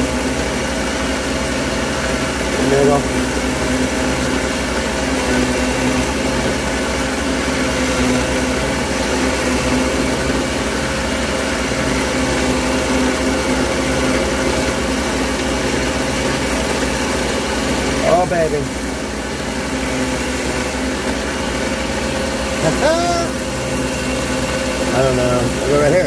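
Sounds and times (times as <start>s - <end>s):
ring saw motor hum with hiss: 2.3s - 6.7s, 11.8s - 21.1s
saw blade cutting glass: 13.8s - 19.0s.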